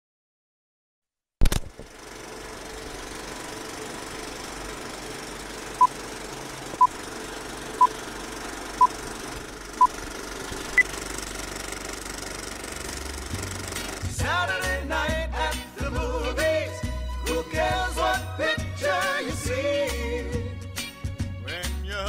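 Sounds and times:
film projector running: 1.4s - 14.3s.

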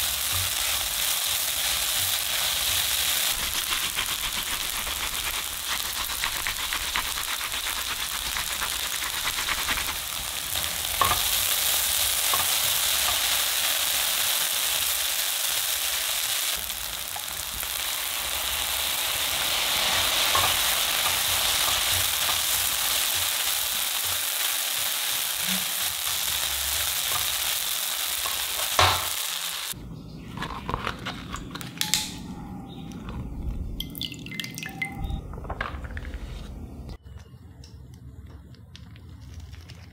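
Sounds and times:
food sizzling in a frying pan: 0.0s - 29.8s.

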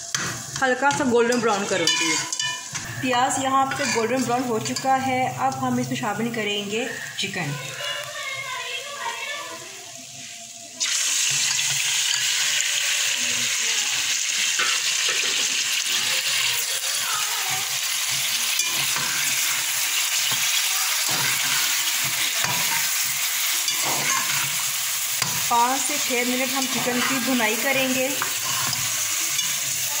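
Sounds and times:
chicken sizzling in hot oil: 0.0s - 30.0s
spatula scraping pot: 0.1s - 5.8s, 16.5s - 30.0s.

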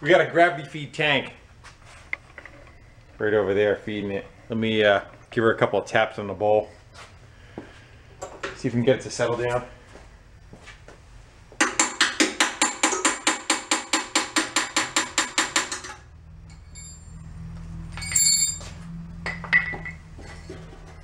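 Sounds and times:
metallic tool clinks: 16.5s - 17.2s, 17.9s - 18.8s.

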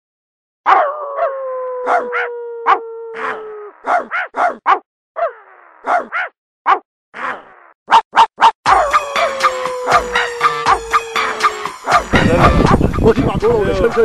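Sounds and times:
dog howling: 0.7s - 4.3s, 8.7s - 12.8s
dog barking: 0.7s - 6.9s, 7.9s - 9.0s, 11.8s - 12.8s.

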